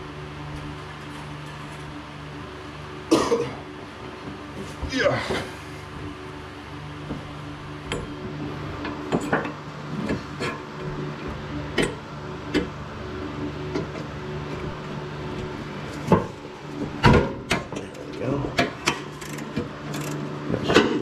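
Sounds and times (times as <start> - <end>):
steady low hum: 0.0 - 21.0
wrench and ratchet clinking: 18.8 - 20.2.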